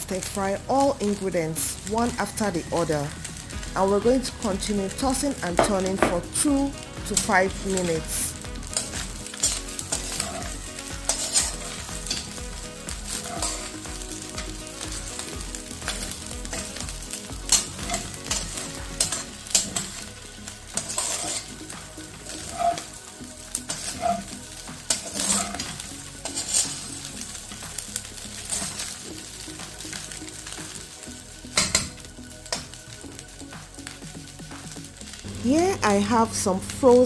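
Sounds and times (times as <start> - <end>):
food sizzling in a wok: 0.0 - 37.0
metal spatula scraping pan: 7.1 - 15.3, 17.4 - 20.1, 20.7 - 27.0, 28.4 - 29.0, 31.6 - 32.7.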